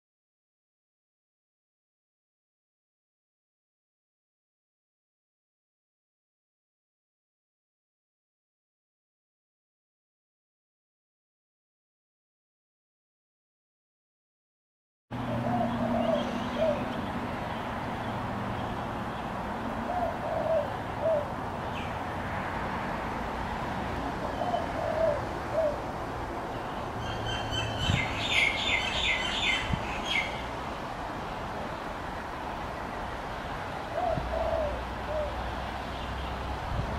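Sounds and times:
pigeon cooing: 0:15.2 - 0:17.0, 0:19.8 - 0:21.4, 0:24.2 - 0:25.9, 0:33.9 - 0:35.4.

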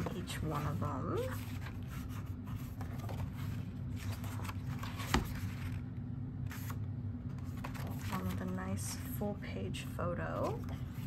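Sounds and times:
book pages turning: 0:00.0 - 0:08.8.

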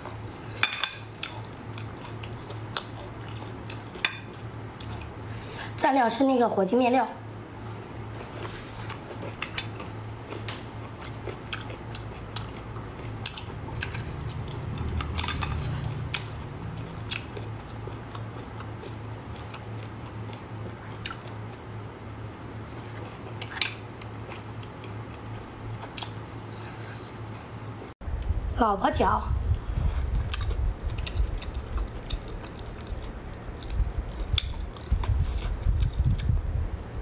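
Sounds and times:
steady low hum: 0:00.0 - 0:37.0
person chewing: 0:01.1 - 0:05.3, 0:08.1 - 0:21.7, 0:22.4 - 0:27.5, 0:29.8 - 0:36.4.

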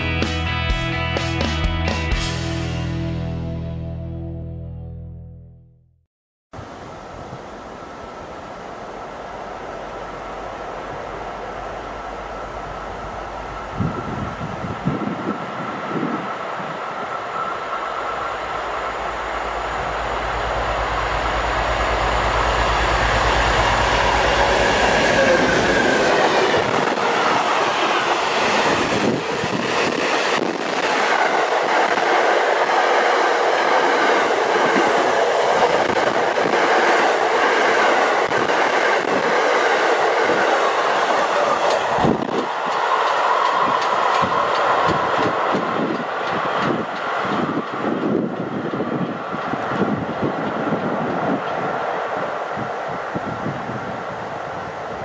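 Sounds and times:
locomotive engine drone: 0:07.0 - 0:32.6.

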